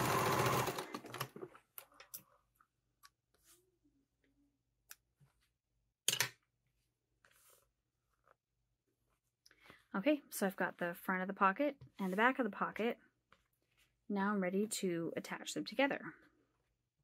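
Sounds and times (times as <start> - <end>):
sewing machine running: 0.0 - 1.3.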